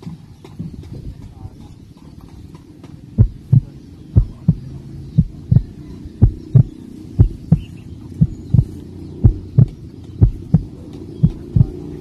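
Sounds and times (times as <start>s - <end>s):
steady low hum: 3.0s - 12.0s
heartbeat thumps: 3.2s - 11.8s.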